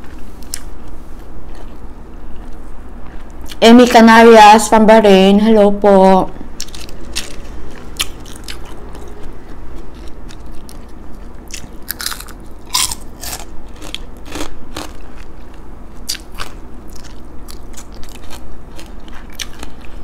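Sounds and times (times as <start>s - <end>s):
person chewing crunchy food: 0.4s - 3.6s, 6.6s - 20.0s.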